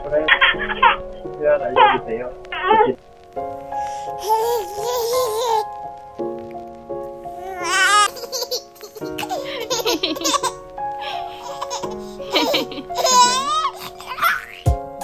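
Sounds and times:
background music: 0.0s - 15.0s
baby laughing: 0.2s - 1.1s, 4.2s - 5.7s, 7.5s - 14.9s.

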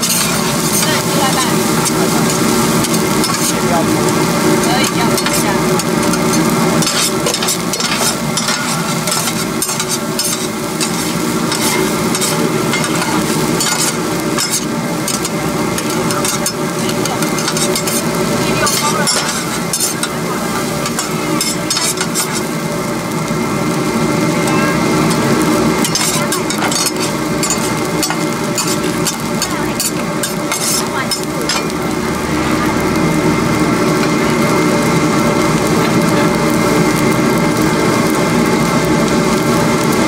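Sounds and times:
spatula scraping and clinking on pan: 0.0s - 22.5s, 25.8s - 31.7s
fried rice sizzling in a wok: 0.0s - 40.0s.

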